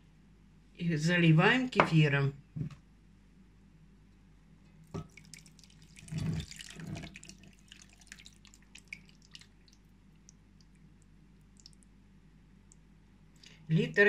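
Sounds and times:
liquid drips and splats: 4.8s - 11.9s
thick liquid gushing: 5.0s - 9.9s.

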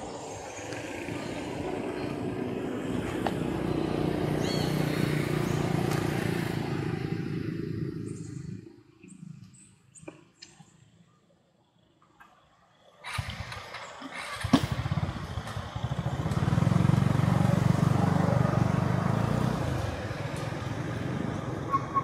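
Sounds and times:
vehicle engine running: 13.0s - 21.7s.

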